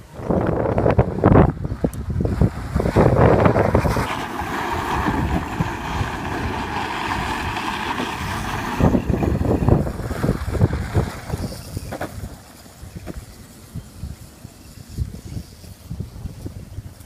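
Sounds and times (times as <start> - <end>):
wind buffeting microphone: 0.0 - 17.0
plastic wheels scrubbing on gravel: 0.3 - 17.0
electric motors whining: 3.0 - 15.9.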